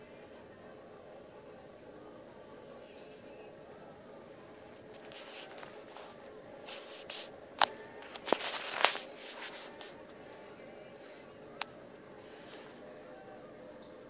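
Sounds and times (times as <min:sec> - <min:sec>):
phone handling rustles: 0:05.0 - 0:10.0.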